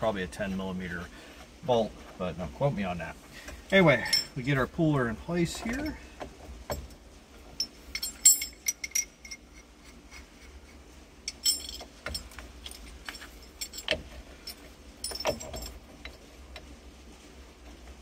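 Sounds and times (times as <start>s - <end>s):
metal tool clinks and knocks: 4.0s - 4.4s, 7.6s - 9.6s, 11.3s - 15.9s.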